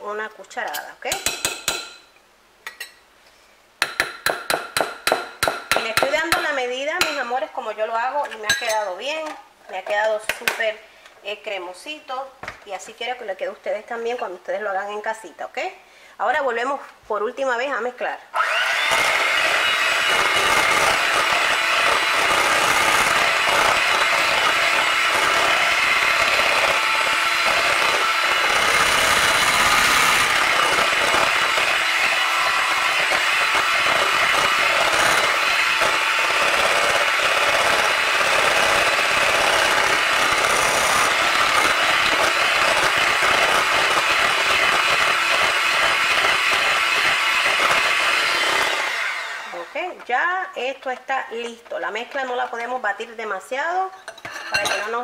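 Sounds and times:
electric hand mixer running: 18.4s - 49.8s.

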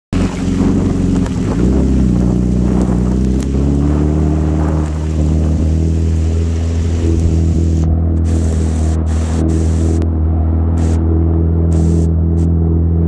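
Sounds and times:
jet ski engine running: 0.1s - 13.0s
rain and spray hissing on water: 0.2s - 10.0s, 10.8s - 11.0s.

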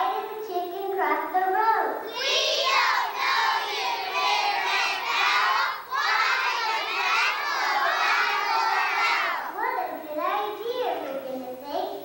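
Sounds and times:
children shouting together: 2.1s - 9.7s.

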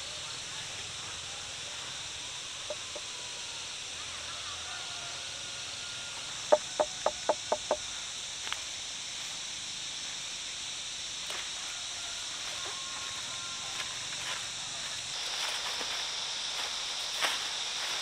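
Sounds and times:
insects droning: 0.0s - 18.0s
animal call notes: 2.6s - 3.5s.

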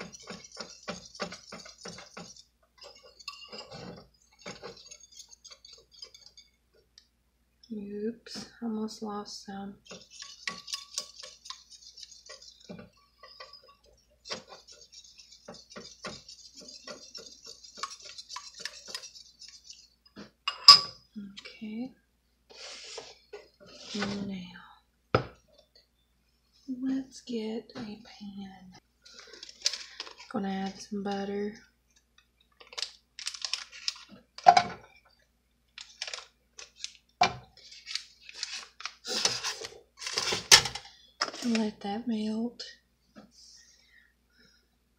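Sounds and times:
whisk ticking against bowl: 0.0s - 6.6s, 9.8s - 20.1s
paper wrapper crinkling: 32.6s - 34.2s, 35.8s - 37.0s, 37.6s - 40.6s.

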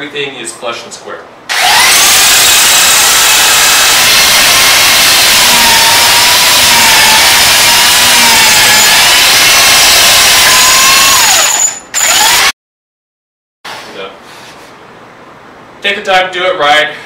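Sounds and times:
belt sander whining: 1.5s - 12.5s.

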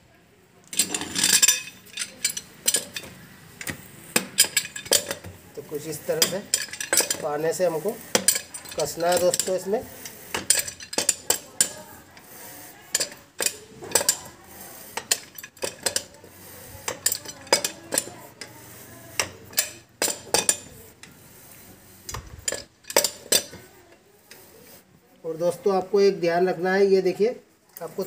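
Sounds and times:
spanners clinking against metal: 0.7s - 21.2s, 22.1s - 23.8s.

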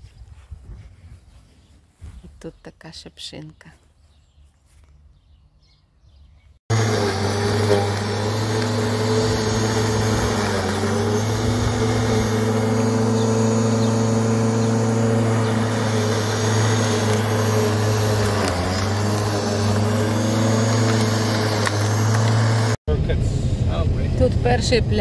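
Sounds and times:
electric lawn mower cutting grass: 6.7s - 22.8s.

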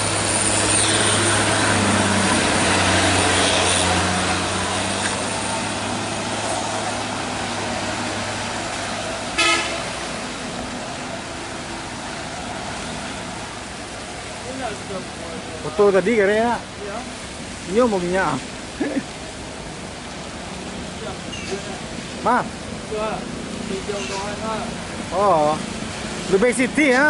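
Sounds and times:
traffic on wet road: 0.0s - 27.0s
truck diesel engine labouring: 0.0s - 27.0s
vehicle horn toot: 9.4s - 10.0s.

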